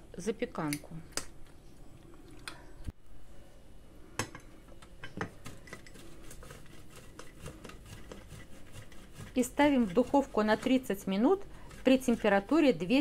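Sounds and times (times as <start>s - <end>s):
cheese scraping on metal grater: 5.4s - 13.0s.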